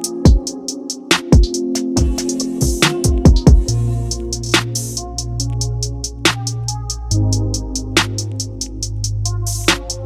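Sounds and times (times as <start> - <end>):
held keyboard chord: 0.0 - 10.0
ticking hi-hats: 0.0 - 10.0
deep kick drums: 1.4 - 3.8.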